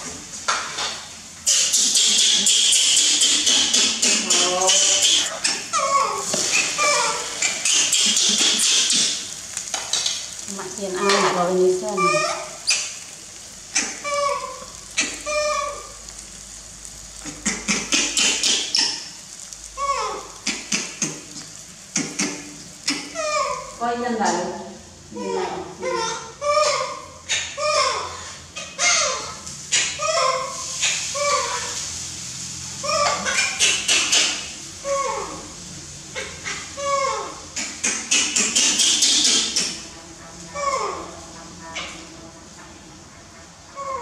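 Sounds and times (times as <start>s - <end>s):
bread sizzling in frying pan: 0.0s - 25.1s, 29.4s - 36.8s
spatula turning food: 1.7s - 24.4s
baby monkey whimpering: 1.8s - 9.2s, 11.0s - 12.9s, 13.8s - 15.9s, 19.8s - 20.6s, 22.0s - 23.7s, 25.2s - 30.6s, 31.2s - 31.8s, 32.8s - 33.6s, 34.8s - 35.4s, 36.8s - 37.4s, 40.6s - 41.2s, 43.8s - 44.0s.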